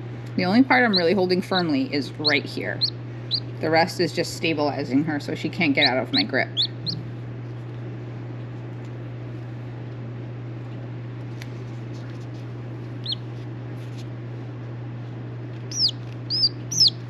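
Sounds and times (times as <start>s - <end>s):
steady low hum: 0.0s - 17.0s
chick peeping: 0.8s - 1.2s, 2.2s - 3.5s, 5.8s - 7.1s, 13.0s - 13.2s, 15.7s - 17.0s.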